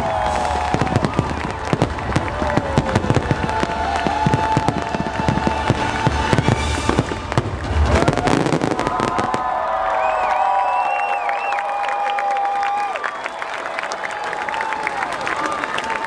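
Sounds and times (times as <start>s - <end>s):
fireworks bangs and crackles: 0.0s - 9.9s.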